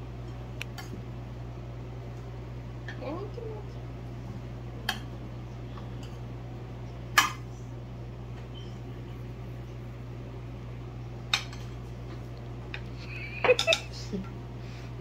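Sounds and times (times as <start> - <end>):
steady low hum: 0.0 - 15.0
metal spoon clinking on dish: 13.5 - 13.9.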